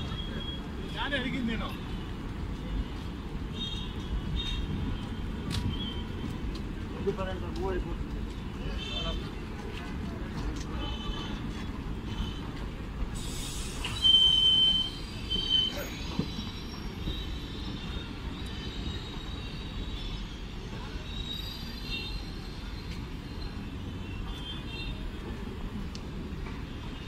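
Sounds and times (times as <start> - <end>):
train wheels rumbling on rails: 0.0 - 27.0
high-pitched wheel squeals: 13.2 - 24.5.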